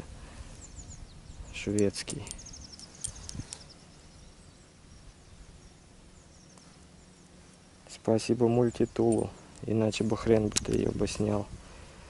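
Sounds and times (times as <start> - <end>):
faint high chirping trills: 0.4 - 10.2.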